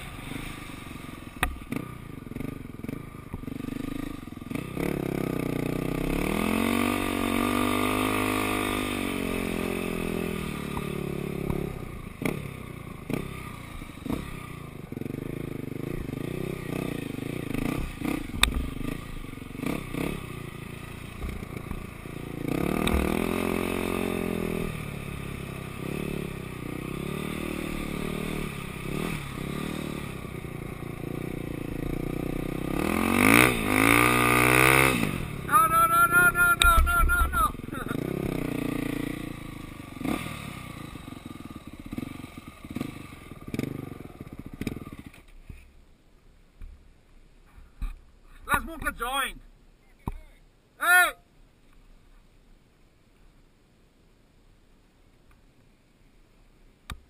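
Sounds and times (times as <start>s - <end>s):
dirt bike engine revving: 0.0s - 45.3s.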